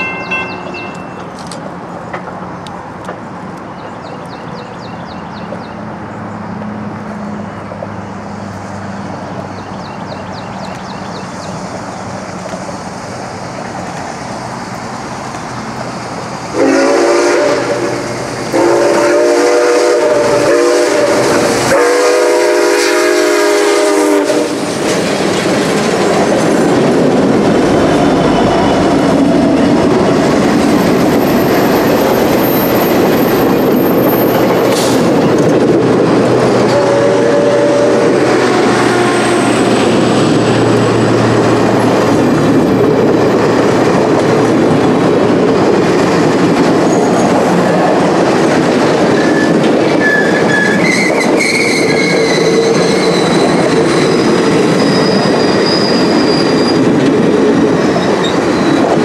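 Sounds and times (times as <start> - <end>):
steam locomotive rumble and clatter: 0.0 - 59.0.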